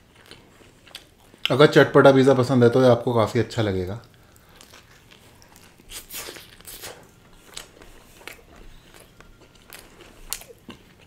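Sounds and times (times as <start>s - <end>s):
close chewing sounds: 0.0s - 1.8s, 4.0s - 11.0s.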